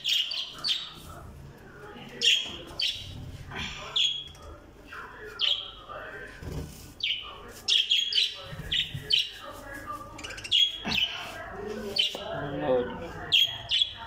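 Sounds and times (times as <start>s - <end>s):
parrots chirping: 0.0s - 1.2s, 2.2s - 3.2s, 3.8s - 4.3s, 7.0s - 12.2s, 13.2s - 14.0s.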